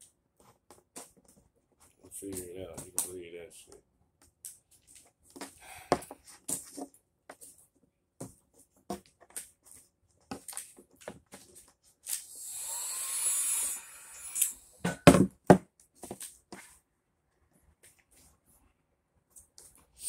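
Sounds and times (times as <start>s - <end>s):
heat gun hissing: 12.3s - 14.7s.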